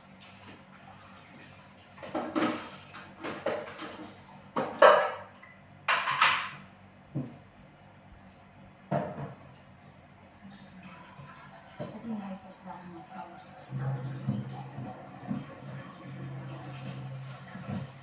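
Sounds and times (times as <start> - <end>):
kitchen items knocking and rattling: 2.0 - 5.2, 5.9 - 6.6.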